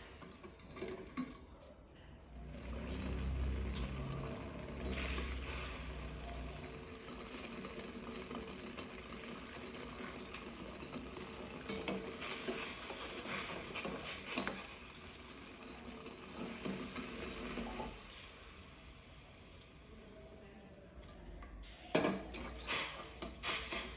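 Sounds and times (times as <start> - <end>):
syrup boiling in a pot: 0.0 - 1.6, 2.3 - 23.9
spoon scraping a pot: 2.8 - 18.3, 21.9 - 23.9.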